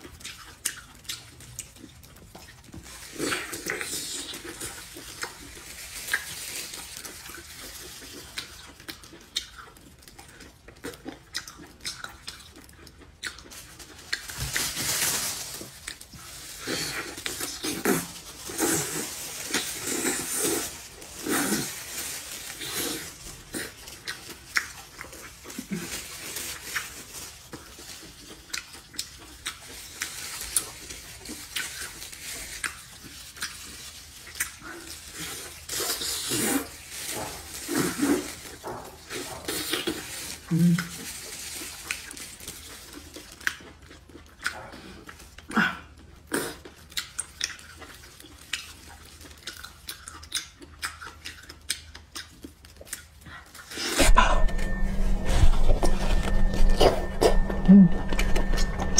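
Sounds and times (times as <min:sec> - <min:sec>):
wet chewing and slurping: 0:00.0 - 0:58.9.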